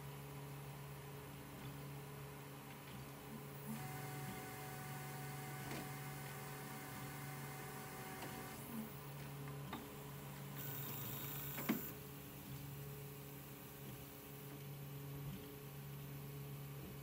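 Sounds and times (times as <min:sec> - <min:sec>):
printer fans humming: 0:03.3 - 0:12.9
high whine of print head: 0:03.6 - 0:09.0, 0:10.1 - 0:12.1.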